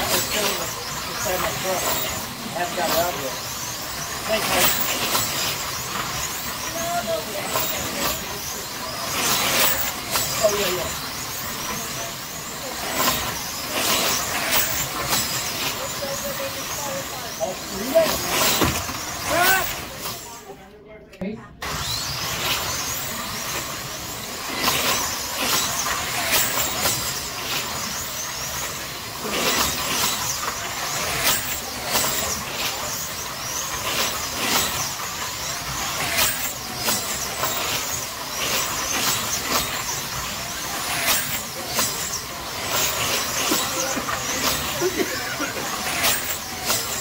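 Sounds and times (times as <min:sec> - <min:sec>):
slot cars clicking on track: 0:00.0 - 0:20.5, 0:21.6 - 0:47.0
slot car motors whining: 0:00.0 - 0:20.8, 0:21.5 - 0:47.0.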